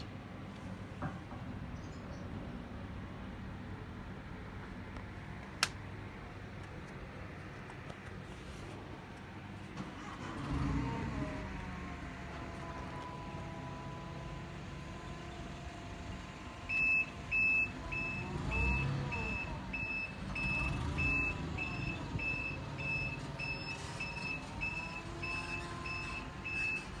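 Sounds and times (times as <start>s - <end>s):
reversing alarm beeping: 16.6s - 27.0s.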